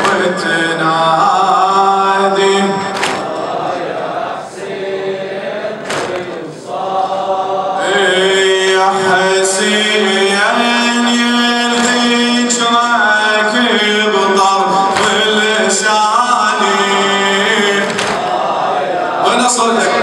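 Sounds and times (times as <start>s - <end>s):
man chanting into a microphone: 0.0s - 3.5s, 7.8s - 18.3s, 19.0s - 20.0s.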